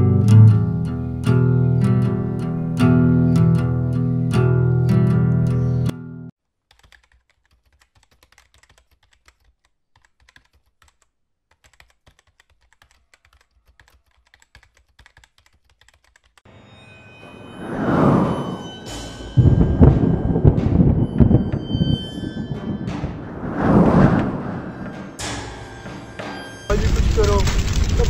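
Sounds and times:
guitar music: 0:00.0 - 0:06.3, 0:24.2 - 0:26.8
keyboard typing clicks: 0:06.7 - 0:16.4
swell of noise: 0:16.5 - 0:26.9.

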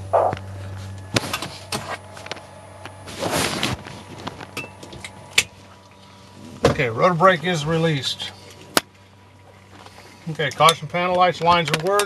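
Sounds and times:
low steady hum: 0:00.0 - 0:12.0
fabric rubbing microphone: 0:03.0 - 0:04.4.

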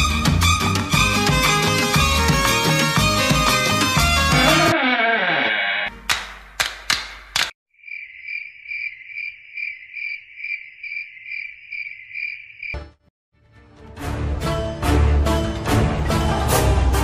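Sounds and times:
cricket chirping: 0:07.7 - 0:12.9.

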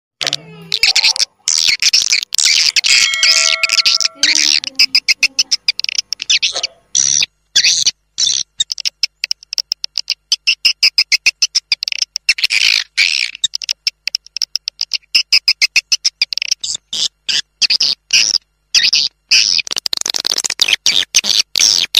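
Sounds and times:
swiftlet chirps and clicks: 0:02.5 - 0:06.4.

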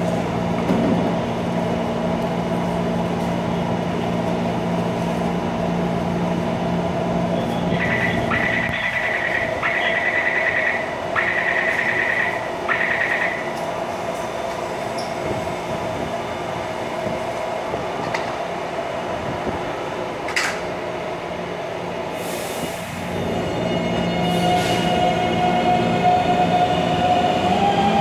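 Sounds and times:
train humming: 0:00.0 - 0:28.0
hiss of train brakes: 0:22.1 - 0:23.0, 0:24.3 - 0:25.0.

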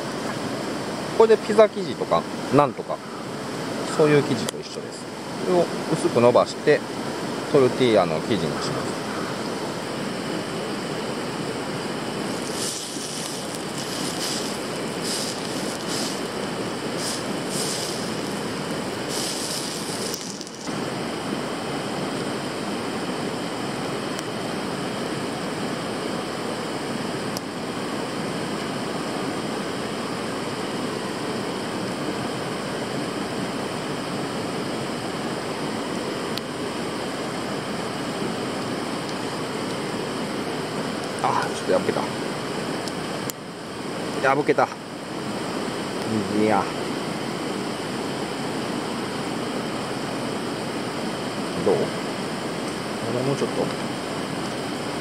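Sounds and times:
river rushing over rocks: 0:11.6 - 0:20.7
brief hissing bursts: 0:12.3 - 0:20.7.

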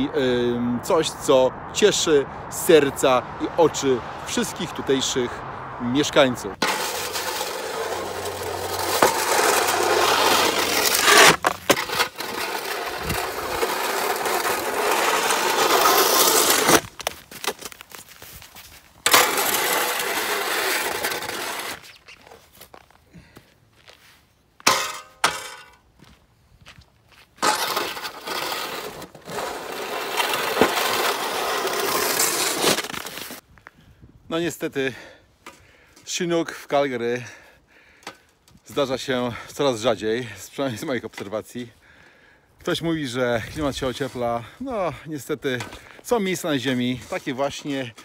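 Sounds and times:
snow shovel scraping concrete: 0:05.9 - 0:23.3, 0:24.6 - 0:25.8, 0:27.3 - 0:33.4, 0:38.1 - 0:41.7, 0:42.7 - 0:48.0.

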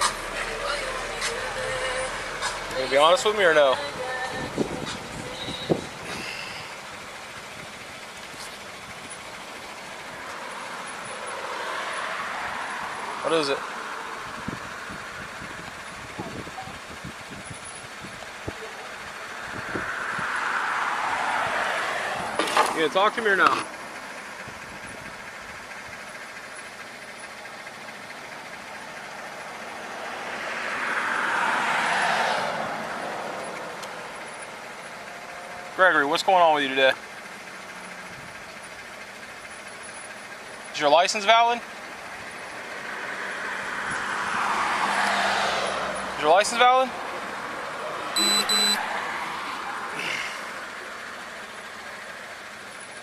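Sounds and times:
vehicle passing by: 0:00.0 - 0:06.8, 0:09.6 - 0:16.6, 0:18.4 - 0:24.1, 0:28.8 - 0:36.0, 0:41.5 - 0:52.1
road traffic noise: 0:00.0 - 0:53.0
street noise: 0:00.0 - 0:53.0.

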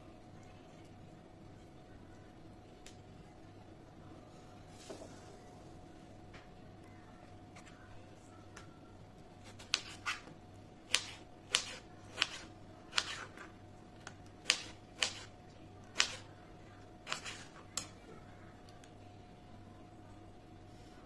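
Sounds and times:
knife slicing a tomato: 0:09.4 - 0:10.3, 0:10.9 - 0:13.5, 0:14.4 - 0:15.3, 0:17.1 - 0:17.6.

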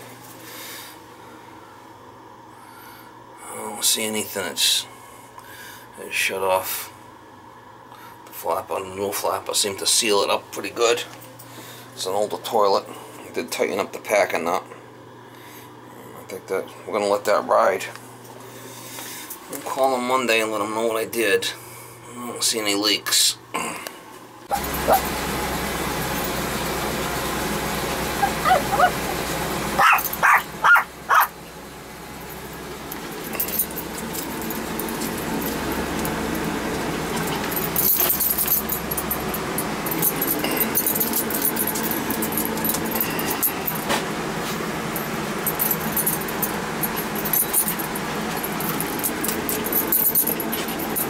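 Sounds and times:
steady hum in van cab: 0:00.0 - 0:51.0
small dog yipping: 0:24.5 - 0:25.0, 0:28.2 - 0:29.2, 0:29.8 - 0:31.3.

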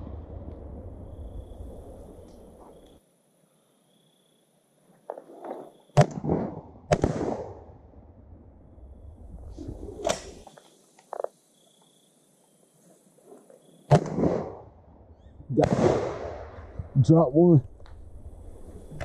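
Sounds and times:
shotgun blasts with echo: 0:06.0 - 0:07.7, 0:13.9 - 0:14.7, 0:15.5 - 0:16.8.

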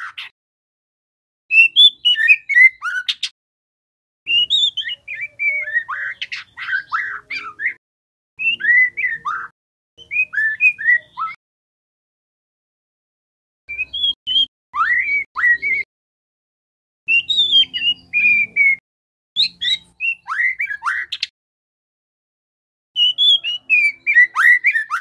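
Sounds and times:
bird singing whistled notes: 0:01.5 - 0:03.3, 0:04.3 - 0:07.8, 0:08.4 - 0:11.4, 0:13.7 - 0:15.9, 0:17.1 - 0:18.8, 0:19.4 - 0:21.3, 0:23.0 - 0:25.0.

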